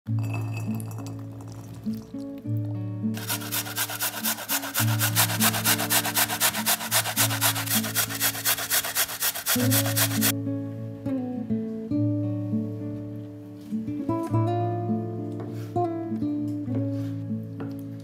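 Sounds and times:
acoustic guitar music: 0:00.1 - 0:18.0
carrot grated on metal grater: 0:03.2 - 0:10.3.

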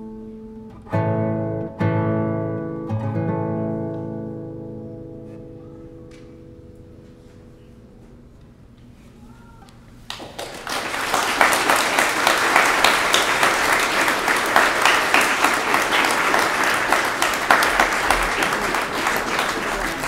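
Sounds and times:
audience applause: 0:10.1 - 0:20.0.

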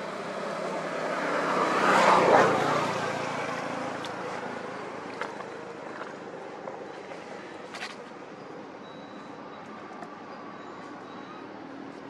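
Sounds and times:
vehicle passing by: 0:00.0 - 0:07.9.

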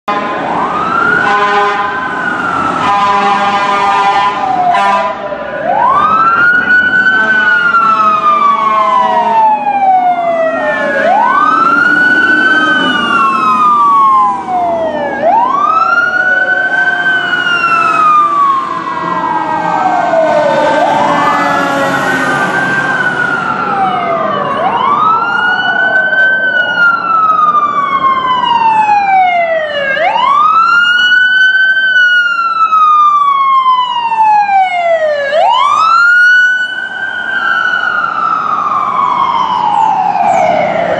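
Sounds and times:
fire siren wailing: 0:00.1 - 0:40.9
second fainter siren: 0:00.1 - 0:40.9
truck engine: 0:00.3 - 0:30.7.

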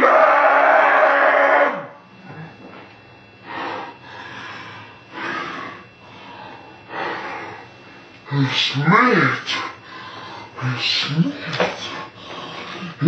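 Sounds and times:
deep drawn-out breaths: 0:03.4 - 0:08.1, 0:09.5 - 0:10.6, 0:11.8 - 0:13.0.

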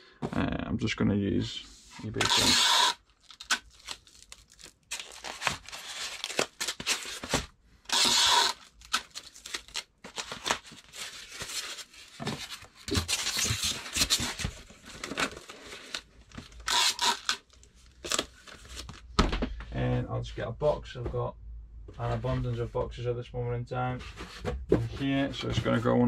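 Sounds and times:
packing tape ripping: 0:02.2 - 0:11.8, 0:16.6 - 0:18.3
rustling and handling: 0:03.0 - 0:07.6, 0:08.4 - 0:19.6.

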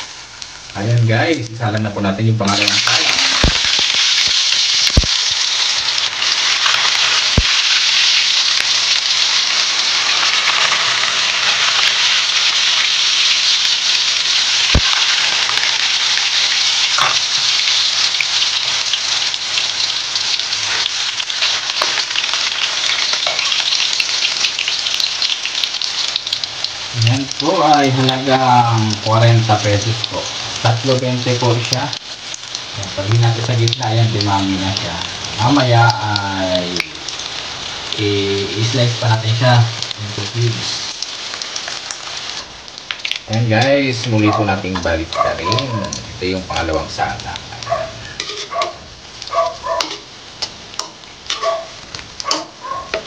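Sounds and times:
tofu sizzling in hot oil: 0:00.0 - 0:53.0.

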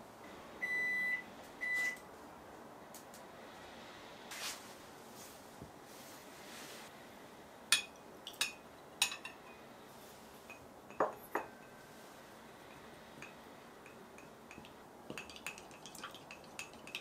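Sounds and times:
metal spoon tapping glass cup: 0:10.5 - 0:11.8, 0:13.2 - 0:17.0.

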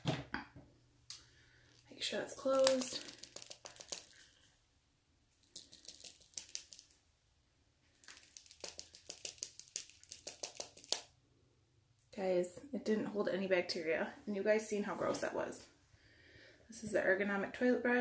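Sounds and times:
plastic tube clicks and crinkles: 0:02.4 - 0:04.4, 0:05.4 - 0:07.0, 0:07.9 - 0:11.1.

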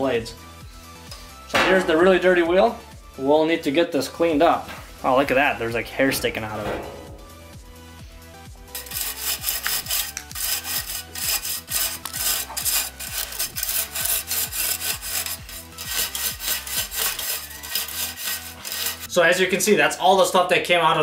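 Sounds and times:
brush scrubbing metal blades: 0:08.7 - 0:19.1.

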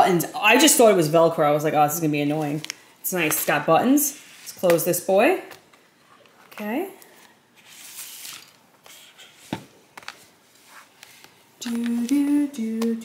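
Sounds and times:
rustling and scraping felt: 0:07.6 - 0:11.3.

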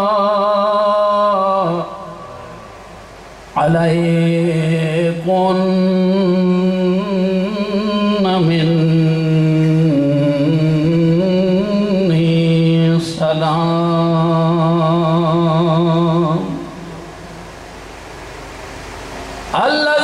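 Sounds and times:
man chanting into a microphone: 0:00.0 - 0:02.6, 0:03.6 - 0:17.0, 0:19.5 - 0:20.0.

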